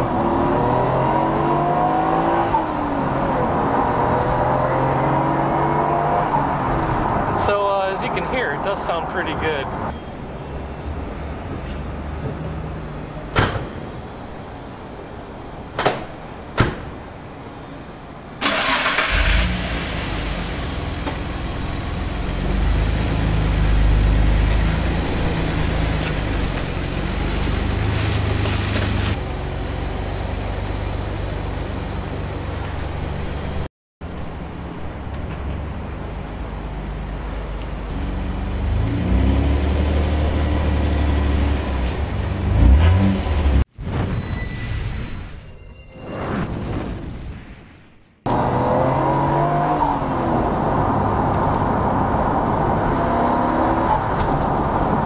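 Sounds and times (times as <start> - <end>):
car engine revving: 38.2 - 43.7, 48.3 - 54.1.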